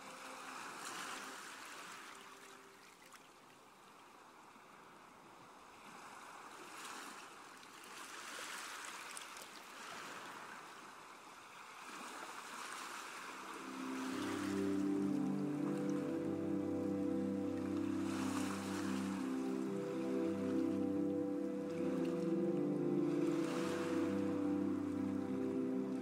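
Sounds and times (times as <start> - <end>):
faint sea waves washing: 0.0 - 3.2, 4.3 - 26.0.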